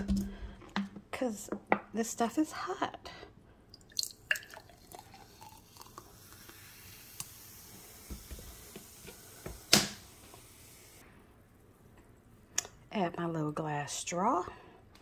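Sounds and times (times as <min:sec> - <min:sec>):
soda pouring into glass: 0:03.8 - 0:08.2
soda fizzing hiss: 0:04.7 - 0:11.0.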